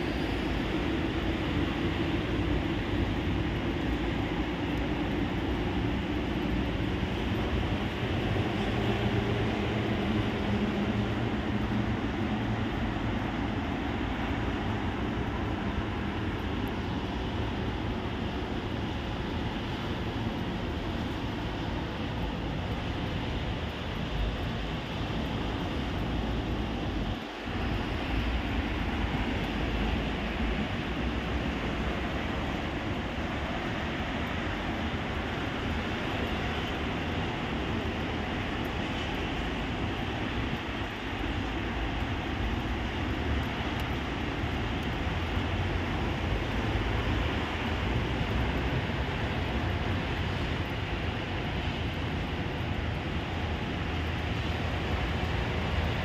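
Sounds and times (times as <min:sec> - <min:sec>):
heavy rain: 0:00.0 - 0:56.0
wind rumbling on microphone: 0:00.0 - 0:56.0.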